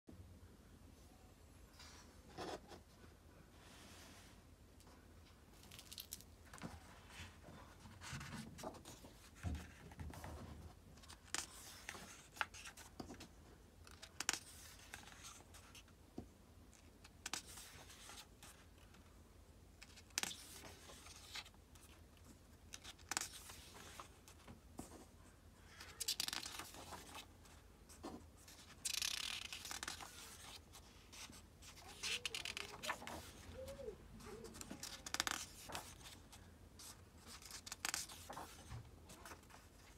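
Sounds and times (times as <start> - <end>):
book pages turning: 25.8 - 27.3, 28.0 - 33.5, 34.4 - 39.9.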